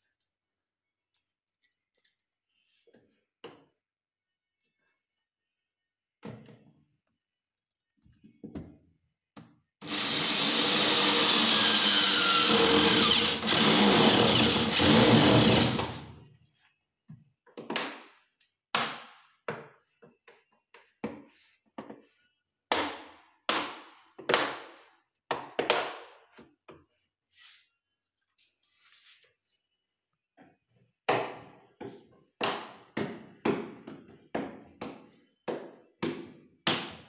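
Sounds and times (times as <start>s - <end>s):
electric drill boring into metal: 9.8s - 16.0s.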